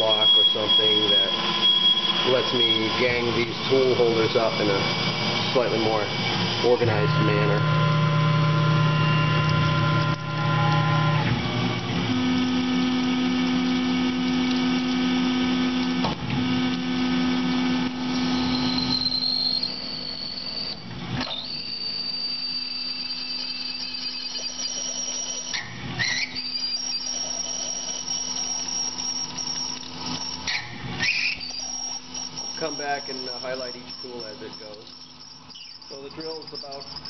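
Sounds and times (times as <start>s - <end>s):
high squeal of drill cutting: 0.0s - 15.9s, 16.8s - 37.0s
low machine tone: 0.0s - 37.0s.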